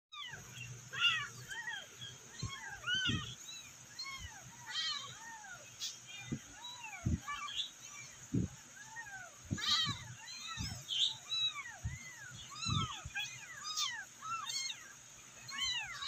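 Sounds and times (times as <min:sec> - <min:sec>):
kittens meowing: 0:00.1 - 0:16.0
soft low thumps: 0:08.3 - 0:08.6.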